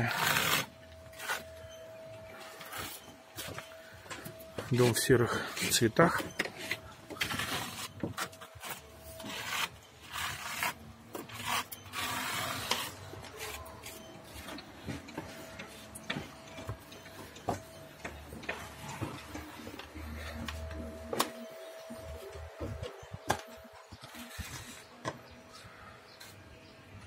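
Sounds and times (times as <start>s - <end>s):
trowels scraping plaster on wall: 6.2s - 14.5s.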